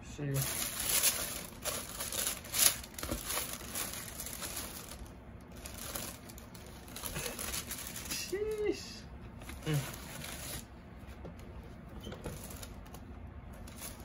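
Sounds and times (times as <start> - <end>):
tissue paper crinkling: 0.3 - 8.8, 9.5 - 10.7, 13.6 - 14.0.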